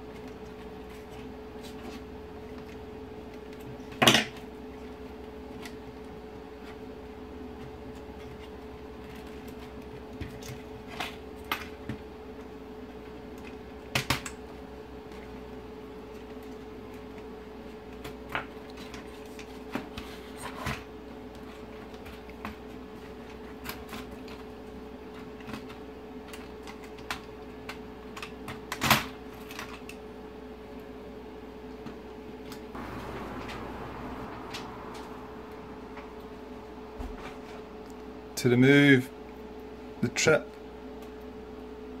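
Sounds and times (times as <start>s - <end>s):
steady hum: 32.8s - 39.8s.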